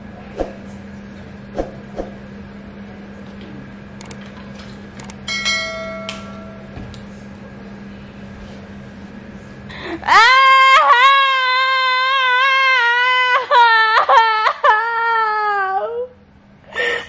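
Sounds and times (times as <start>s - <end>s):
woman wailing: 10.0s - 16.2s.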